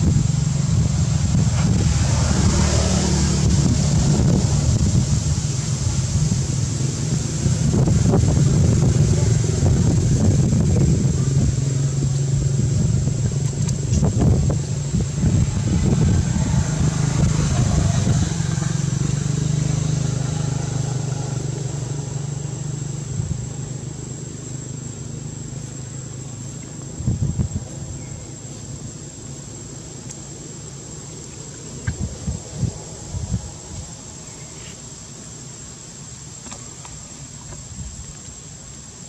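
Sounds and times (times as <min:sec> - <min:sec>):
engine running with low hum: 0:00.0 - 0:39.0.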